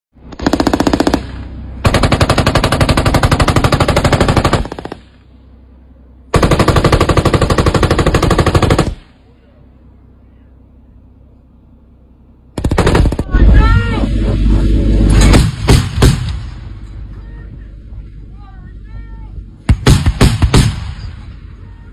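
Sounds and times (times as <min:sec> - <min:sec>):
autocannon firing bursts: 0:00.2 - 0:05.3, 0:06.3 - 0:09.2, 0:12.6 - 0:17.0, 0:19.6 - 0:21.5.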